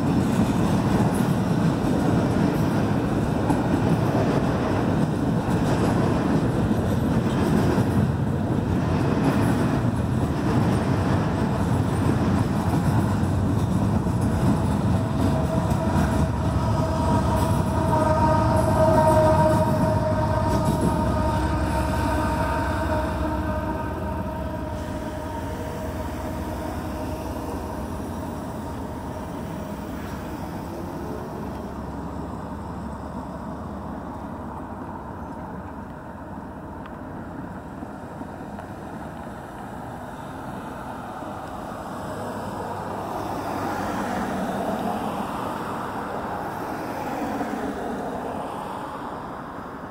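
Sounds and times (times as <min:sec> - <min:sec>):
cars driving over railroad crossing: 0:00.0 - 0:49.9
passing train: 0:00.0 - 0:49.9.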